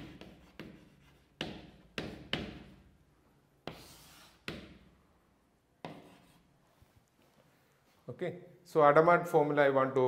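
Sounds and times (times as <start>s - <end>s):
chalk tapping and scraping on blackboard: 0.0s - 3.0s, 3.6s - 5.0s, 5.8s - 6.6s.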